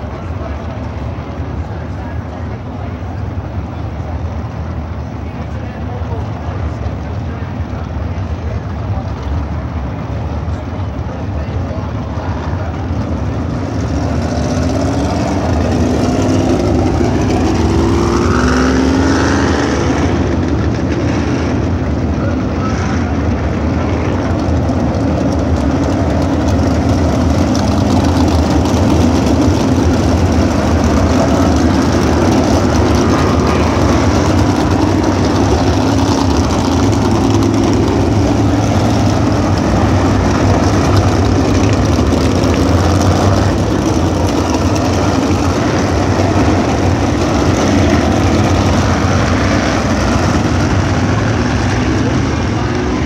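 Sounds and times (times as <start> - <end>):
race car engines droning: 0.0 - 53.0
engine accelerating: 11.7 - 53.0.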